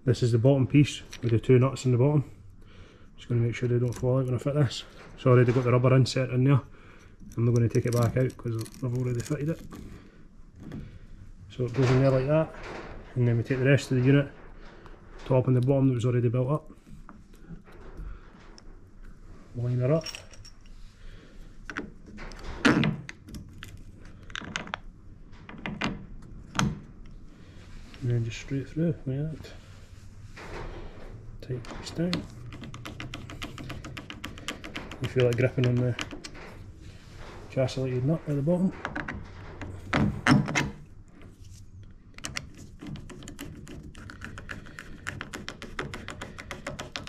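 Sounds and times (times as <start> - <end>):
plastic parts knocking and clicking: 32.0 - 36.5, 42.1 - 47.0.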